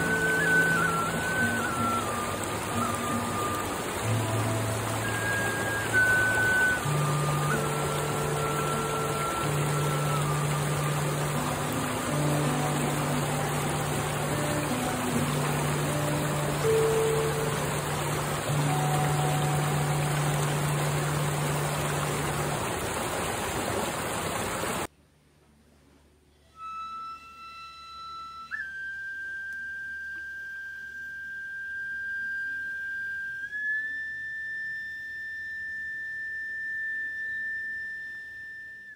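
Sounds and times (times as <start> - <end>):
bamboo flute long notes: 0.0 - 24.9, 26.3 - 38.9
mountain stream rushing: 0.0 - 24.9.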